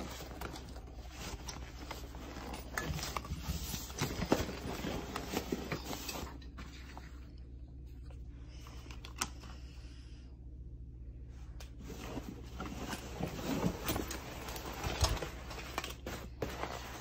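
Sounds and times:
fabric rustling: 0.0s - 7.3s, 11.8s - 17.0s
steady low hum: 0.0s - 17.0s.

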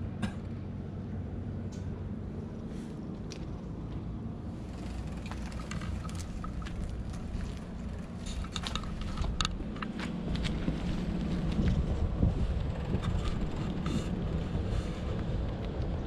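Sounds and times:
wind rumble on microphone: 1.0s - 16.0s
camera handling clicks and rustles: 8.2s - 10.6s.

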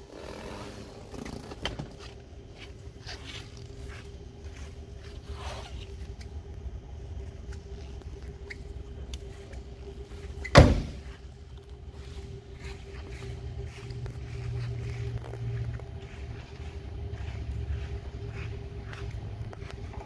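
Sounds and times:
steady low hum: 0.0s - 20.0s
rustling and scraping: 0.1s - 6.4s, 7.2s - 20.0s
car door slamming: 10.5s - 11.1s.

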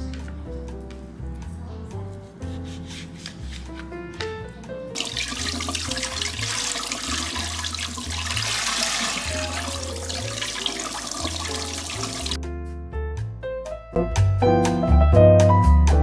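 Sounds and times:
tap water splashing: 5.0s - 12.4s.

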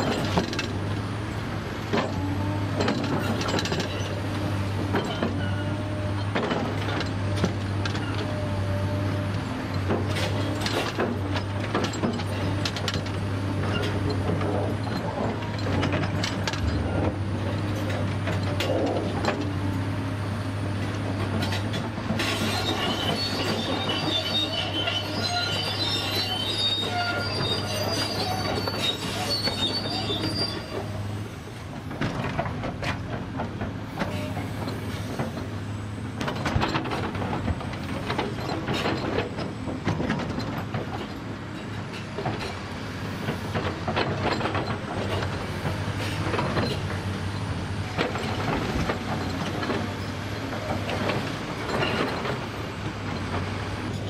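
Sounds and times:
excavator diesel engine running: 0.0s - 54.0s
high metallic squeal: 22.2s - 31.0s.

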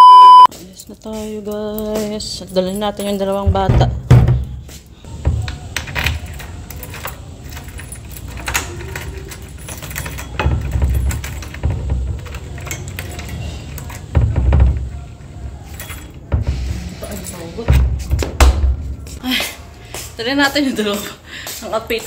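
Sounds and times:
keys jangling: 0.8s - 3.5s, 5.9s - 14.2s, 15.6s - 17.8s
metallic lock clicks: 5.5s - 14.1s.

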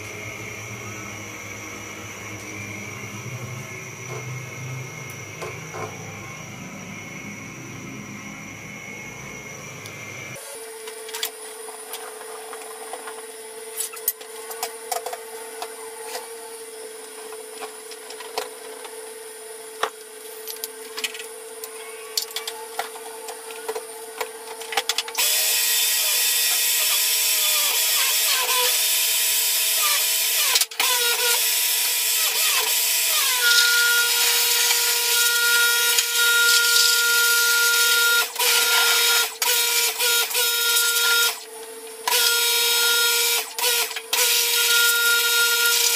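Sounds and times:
steady low hum: 0.0s - 10.5s
pressure washer motor whining: 0.0s - 18.2s, 19.7s - 45.9s.

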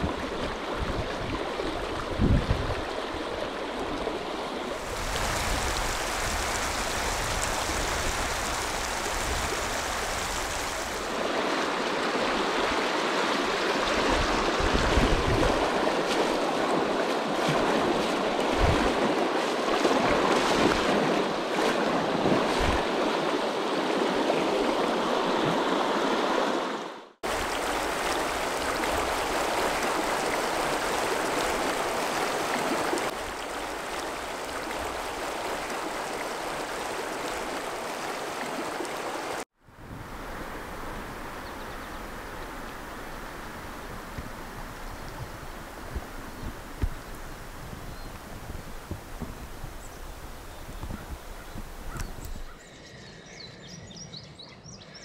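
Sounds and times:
river water rushing over rocks: 2.9s - 21.1s, 22.3s - 39.5s.

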